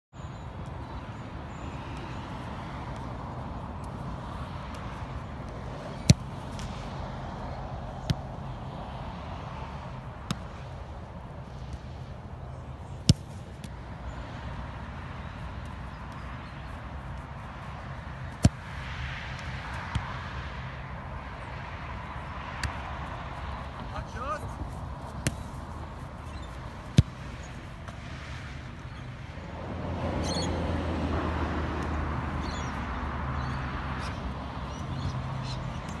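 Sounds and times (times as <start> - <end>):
outdoor background noise: 0.1 - 36.0
soccer ball kicks: 4.5 - 6.8, 7.9 - 8.5, 10.2 - 10.7, 13.0 - 13.9, 15.6 - 20.4, 22.5 - 28.7.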